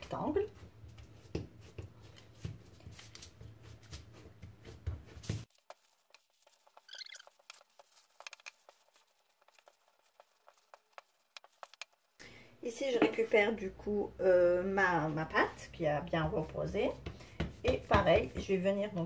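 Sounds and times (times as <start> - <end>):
hands patting paste: 0.1 - 12.2, 16.0 - 19.0
rolling pin on paper: 0.4 - 12.2, 15.7 - 19.0.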